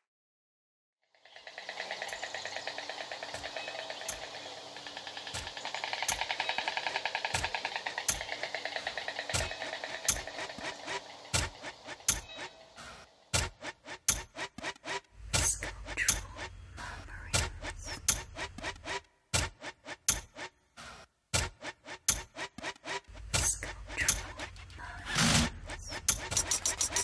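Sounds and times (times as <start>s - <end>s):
low hum: 14.5s - 19.0s, 22.5s - 27.0s.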